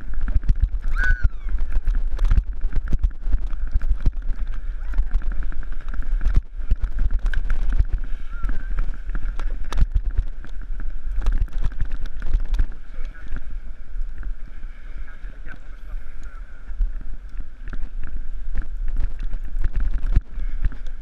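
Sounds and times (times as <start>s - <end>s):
wind on microphone: 0.0s - 21.0s.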